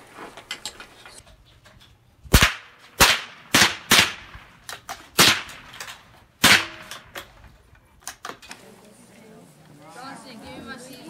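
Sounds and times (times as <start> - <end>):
rifle shots: 2.3 - 7.3.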